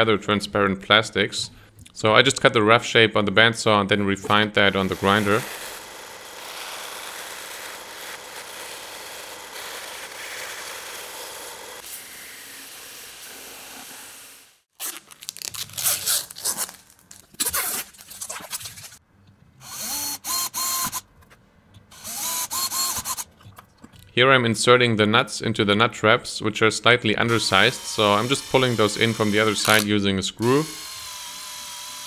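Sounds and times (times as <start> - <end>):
bandsaw cutting plastic sheet: 4.2 - 19.0, 19.7 - 21.0, 22.0 - 23.3, 27.3 - 32.0
belt grinder sanding: 4.3 - 14.6, 22.0 - 23.3, 27.3 - 32.0
drill whine: 4.7 - 14.4, 19.6 - 21.0, 22.0 - 23.2, 27.3 - 32.0.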